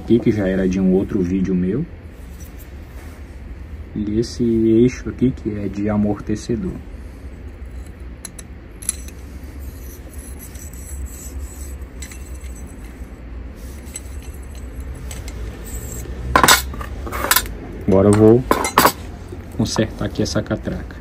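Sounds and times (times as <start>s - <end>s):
steady low hum: 0.0s - 21.0s
metal clinks and scraping: 7.4s - 19.1s
sharp metallic clatter: 7.7s - 17.5s.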